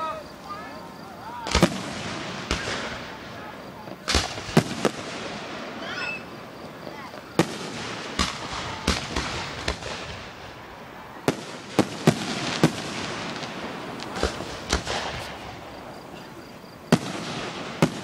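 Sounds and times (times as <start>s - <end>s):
firework shells bursting: 1.4s - 18.0s.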